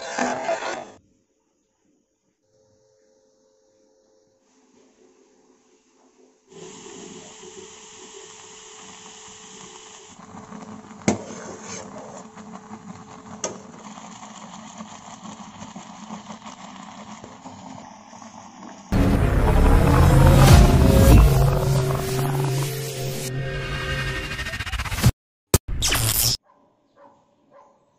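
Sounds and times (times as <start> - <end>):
oats cooking with steady hiss: 1.4 - 18.9.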